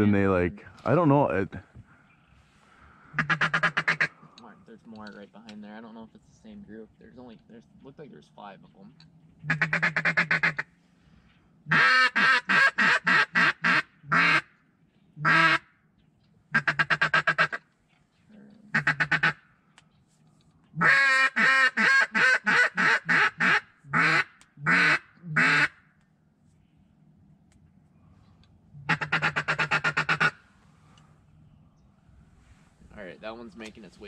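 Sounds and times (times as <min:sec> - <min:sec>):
duck call quacks: 0:03.1 - 0:04.2, 0:09.5 - 0:10.7, 0:11.7 - 0:14.5, 0:15.2 - 0:15.6, 0:16.5 - 0:17.6, 0:18.7 - 0:19.4, 0:20.8 - 0:25.8, 0:28.9 - 0:30.4.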